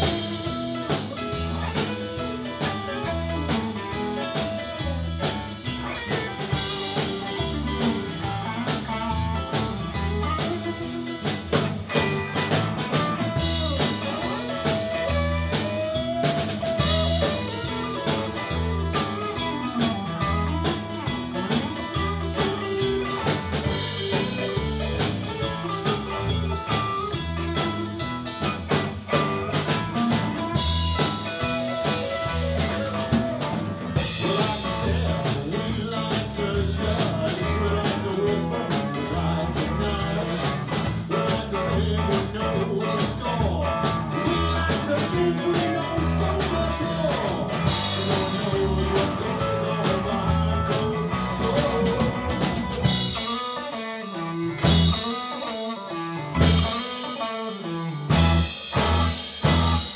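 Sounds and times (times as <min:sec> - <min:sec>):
live blues band playing: 0:00.0 - 0:59.9
person singing: 0:13.3 - 0:20.1, 0:31.2 - 0:57.6.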